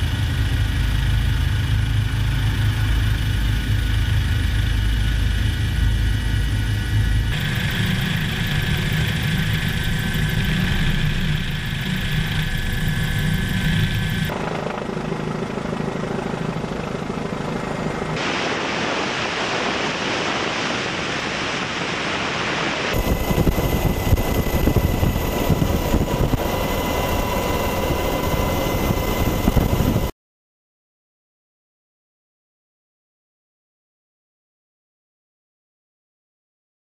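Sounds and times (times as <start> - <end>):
helicopter turbine and rotor drone: 0.0 - 19.4, 20.8 - 30.1.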